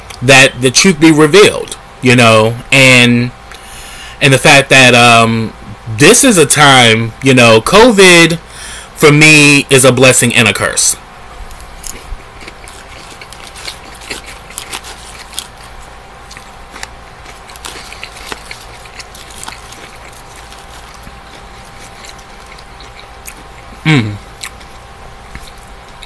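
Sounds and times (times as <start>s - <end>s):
chewing salad: 11.4s - 26.0s
person humming mm: 23.8s - 24.3s.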